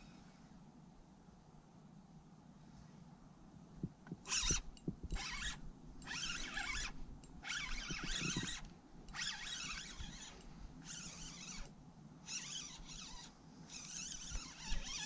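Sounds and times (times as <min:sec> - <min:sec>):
fishing reel cranking: 0:04.2 - 0:15.0.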